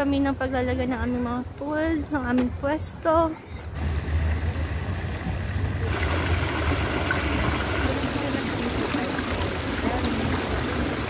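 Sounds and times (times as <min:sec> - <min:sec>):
fountain water splashing into pool: 0:03.8 - 0:11.0.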